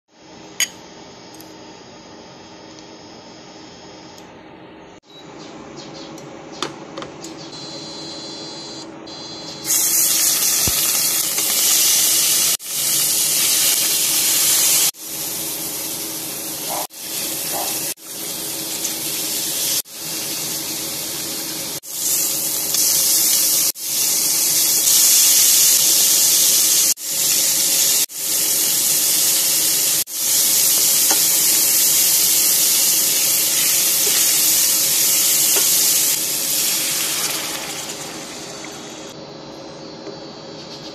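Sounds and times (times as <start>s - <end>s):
food sizzling in hot oil: 9.6s - 39.2s.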